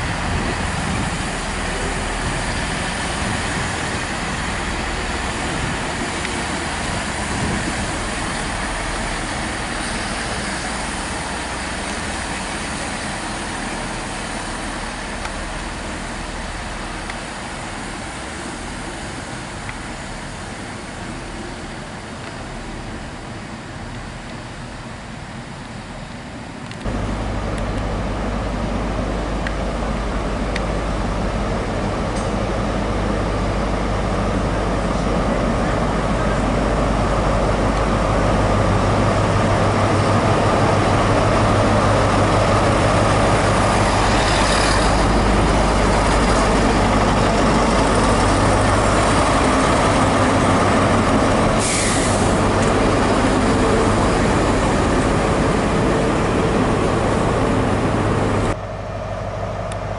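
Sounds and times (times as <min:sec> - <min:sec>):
diesel train engine running: 0:00.0 - 0:59.9
air hissing: 0:51.6 - 0:52.7.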